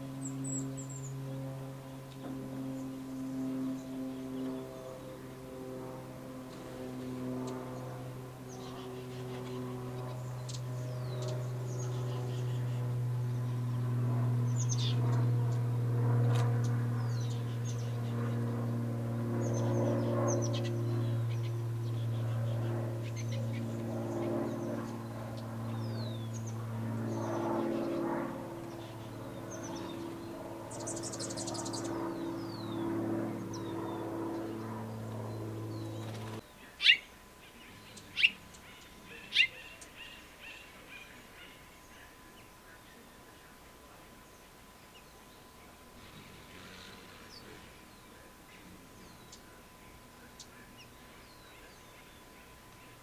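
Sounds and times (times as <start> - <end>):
small birds chirping: 0.0 - 5.1, 6.5 - 53.0
steady low hum: 0.0 - 53.0
sharp bird chip calls: 36.8 - 37.1, 38.0 - 41.7.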